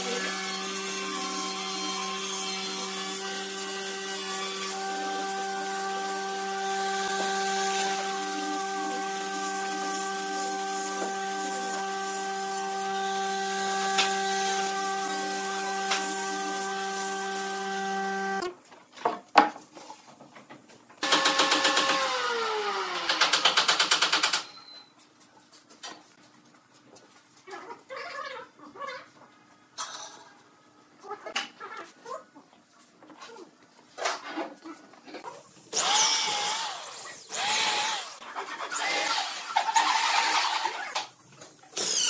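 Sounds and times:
angle grinder sanding wood: 0.0 - 18.4, 35.8 - 40.8.

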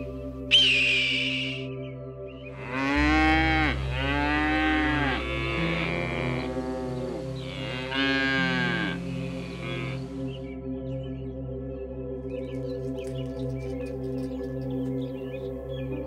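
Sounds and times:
low music drone: 0.0 - 16.0
cow mooing: 2.6 - 10.2.

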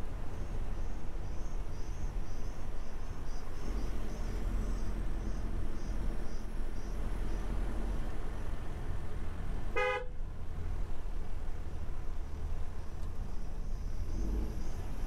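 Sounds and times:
engine and road noise: 0.0 - 15.0.

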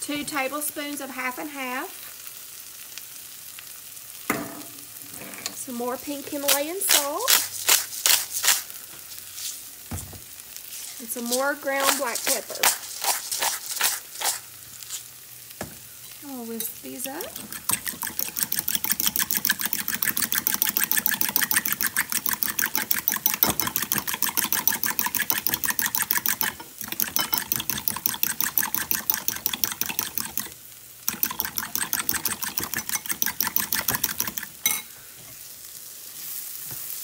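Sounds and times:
fork whisking eggs in bowl: 11.2 - 14.4, 16.6 - 34.8.

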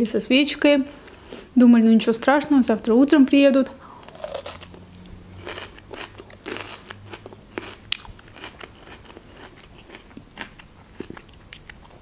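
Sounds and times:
chewing with wet crunches: 4.0 - 12.0.

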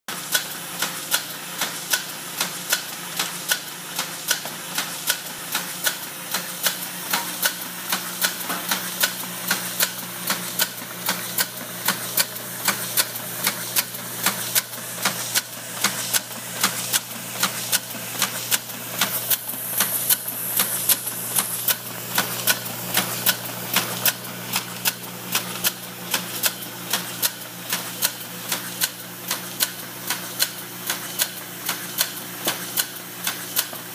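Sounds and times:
motor hum: 3.8 - 27.4.

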